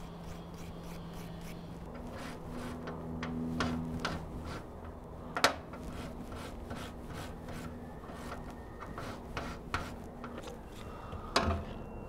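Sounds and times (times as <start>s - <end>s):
wire brush scrubbing steel: 0.0s - 2.9s.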